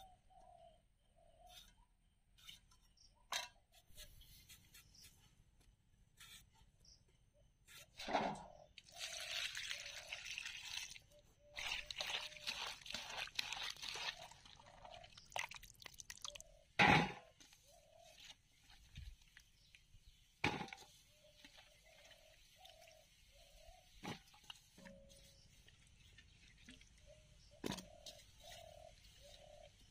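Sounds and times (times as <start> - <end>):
splashes of handled vegetables: 8.8 - 16.4
water pouring into steel bowl: 8.8 - 16.4.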